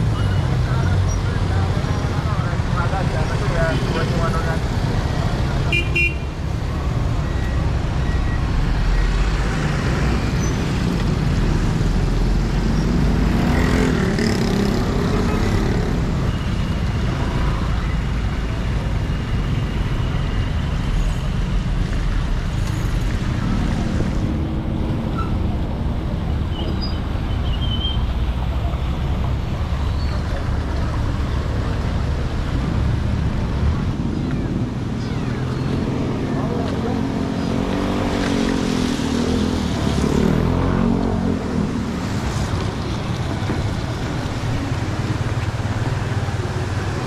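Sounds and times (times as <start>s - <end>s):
traffic on wet road: 0.0s - 47.0s.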